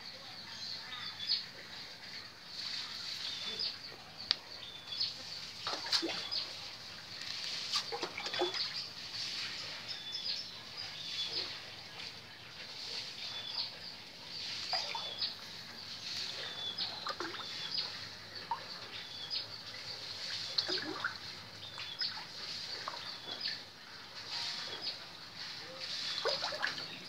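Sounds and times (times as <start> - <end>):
bird chirping: 2.2 - 27.0
fish splashing at water surface: 5.4 - 9.9, 14.4 - 18.8, 20.0 - 24.8, 25.5 - 27.0.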